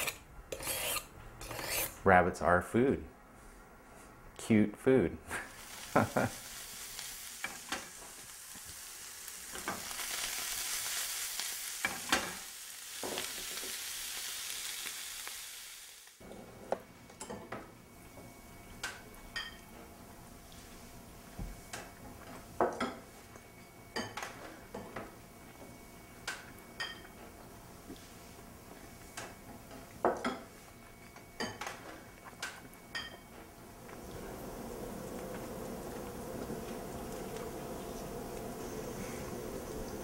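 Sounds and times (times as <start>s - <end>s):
spatula scraping a pan: 0.0s - 2.0s
meat sizzling in a skillet: 5.5s - 16.2s
spoons clinking on ceramic bowls: 30.2s - 31.7s, 32.9s - 33.2s.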